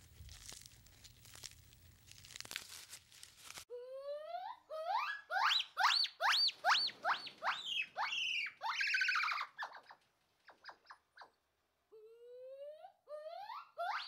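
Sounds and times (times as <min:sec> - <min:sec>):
gibbon whooping song: 0:12.1 - 0:14.0.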